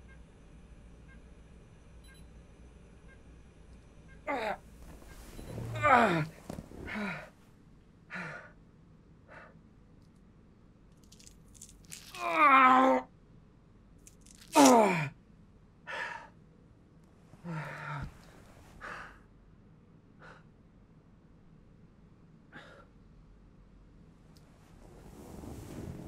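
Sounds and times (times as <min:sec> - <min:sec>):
heavy breaths: 0:04.4 - 0:07.4, 0:17.4 - 0:19.3
man groaning: 0:05.7 - 0:07.2, 0:14.5 - 0:15.2
man crying out in pain: 0:05.8 - 0:06.3, 0:14.4 - 0:15.2.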